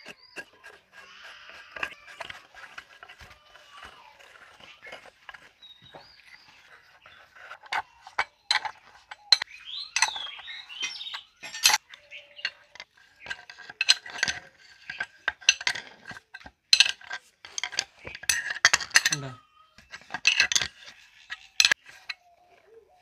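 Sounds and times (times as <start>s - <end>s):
spanners clinking on metal parts: 0.0s - 22.3s.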